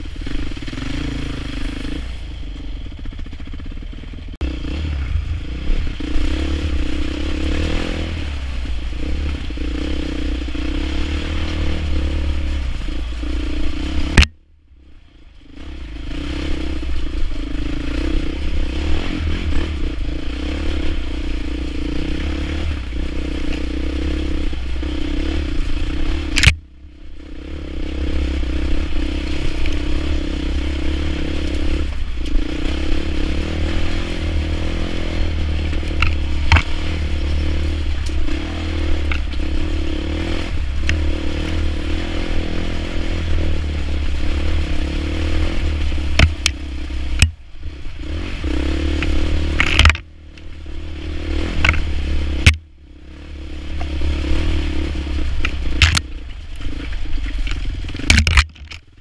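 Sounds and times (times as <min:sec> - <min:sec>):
motorcycle engine running: 0:00.0 - 0:59.0
motorcycle clattering over rocks: 0:35.8 - 0:37.0, 0:46.0 - 0:46.6, 0:49.0 - 0:50.1, 0:55.4 - 0:59.0
wheels knocking on rocks: 0:46.0 - 0:47.4.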